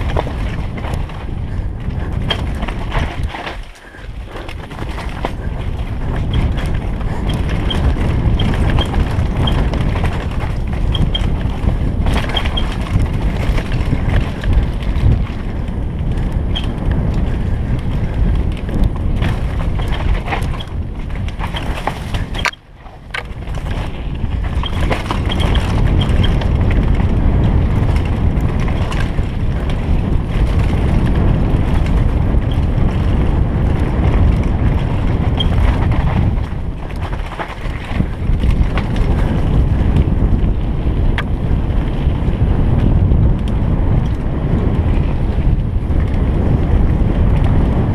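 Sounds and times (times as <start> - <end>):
mountain bike rattling: 0.0 - 47.9
wind buffeting microphone: 0.0 - 47.9.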